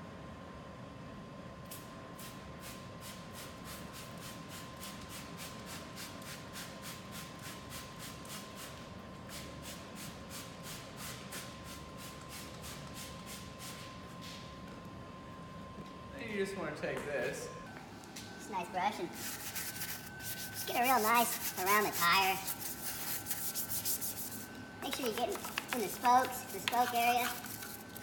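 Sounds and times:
faint high hum: 0.0s - 28.0s
spray bottle hissing: 19.2s - 28.0s.

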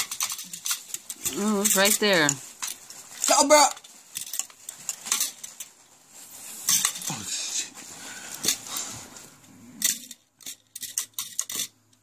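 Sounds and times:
foosball table rattling and clicking: 0.0s - 5.7s, 9.8s - 12.0s.

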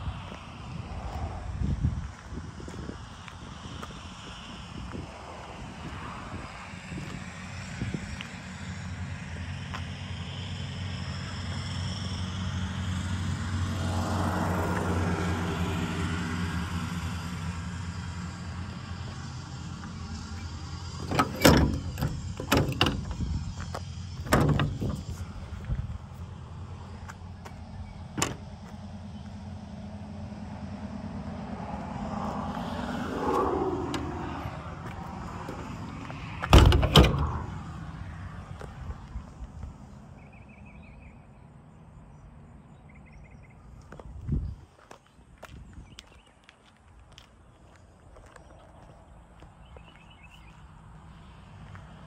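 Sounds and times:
steady low rumble: 0.0s - 4.0s
bus engine idling: 17.1s - 31.2s
bus door click: 21.0s - 25.3s, 28.2s - 28.5s, 33.8s - 34.3s, 35.3s - 37.6s.

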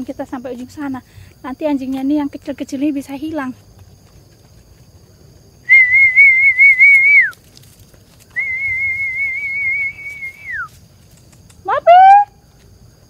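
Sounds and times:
woman whistling: 5.7s - 7.4s, 8.3s - 10.7s.

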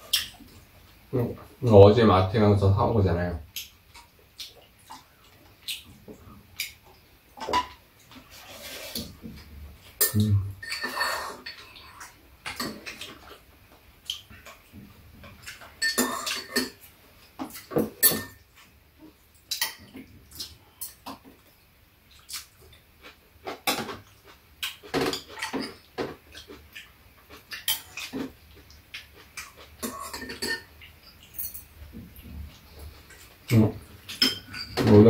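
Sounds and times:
utensils clinking against bowls: 10.0s - 13.3s, 15.4s - 16.8s, 17.5s - 18.4s, 24.9s - 26.5s, 29.8s - 31.7s, 33.5s - 35.0s.

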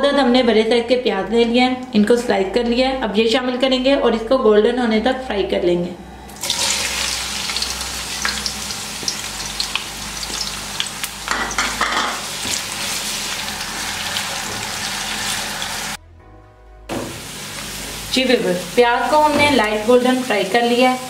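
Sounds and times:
onions sizzling in hot oil: 6.4s - 16.0s, 17.1s - 21.0s.

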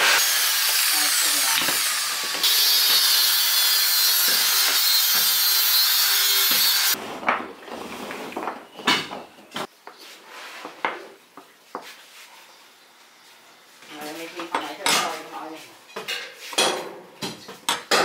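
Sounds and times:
drill grinding wood: 0.0s - 7.0s.

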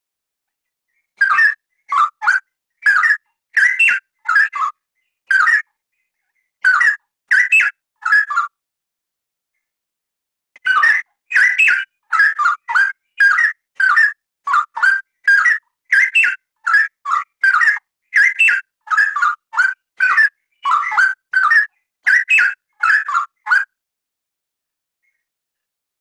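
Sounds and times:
bird singing whistled phrases: 1.1s - 5.7s, 6.6s - 8.5s, 10.6s - 23.7s.

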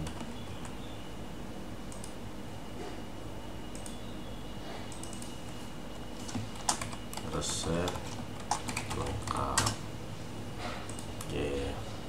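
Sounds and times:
computer mouse and key clicks: 0.0s - 0.8s, 1.9s - 2.2s, 3.7s - 4.0s, 4.9s - 5.4s, 6.2s - 9.8s, 10.8s - 11.4s
steady low hum: 0.0s - 12.0s.

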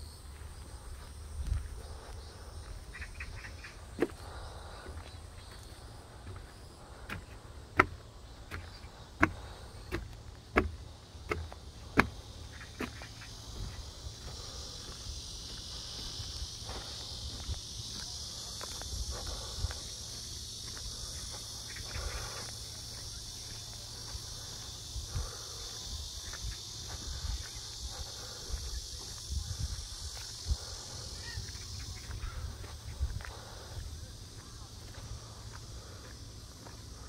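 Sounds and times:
insects droning: 0.0s - 37.0s
low bumps: 3.8s - 17.7s.

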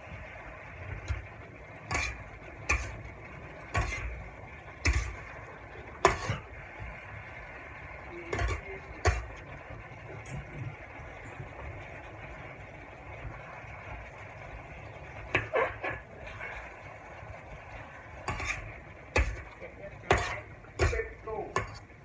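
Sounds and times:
steady frying hiss: 0.0s - 22.0s
metal spatula scraping wok: 1.0s - 5.4s, 6.0s - 6.5s, 8.3s - 9.3s, 18.2s - 22.0s.

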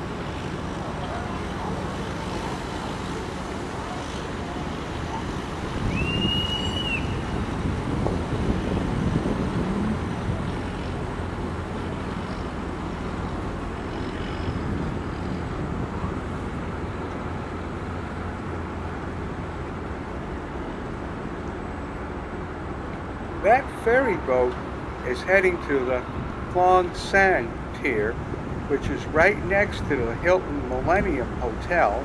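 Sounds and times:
boat engine rumble: 0.0s - 32.0s
wind on microphone: 4.1s - 18.8s
short high whistle: 5.9s - 7.2s.

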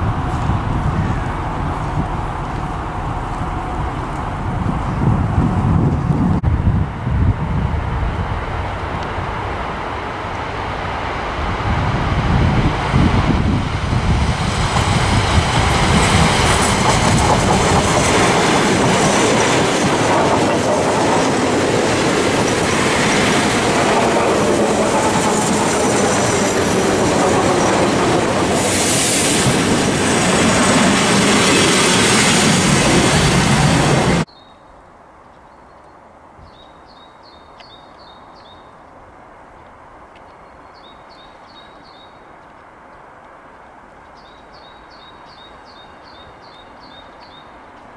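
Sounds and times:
train wheels clattering: 14.4s - 34.2s.

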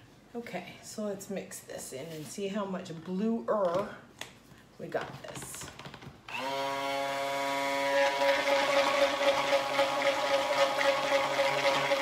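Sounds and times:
stick blender motor whine: 6.3s - 12.0s.

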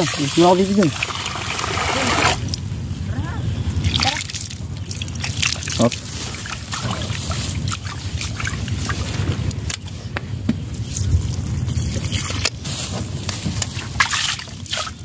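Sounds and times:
water pouring off: 0.0s - 2.6s, 3.8s - 9.5s.

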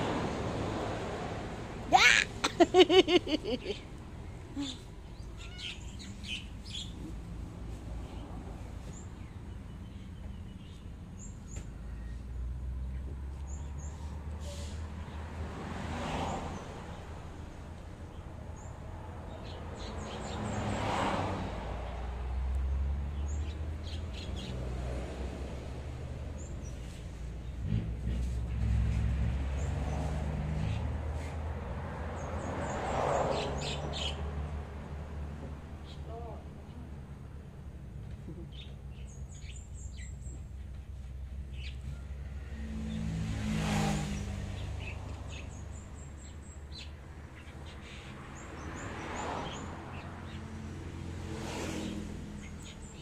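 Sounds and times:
passing traffic rumble: 0.0s - 53.0s
small birds chirping: 3.4s - 7.4s, 38.2s - 42.0s.

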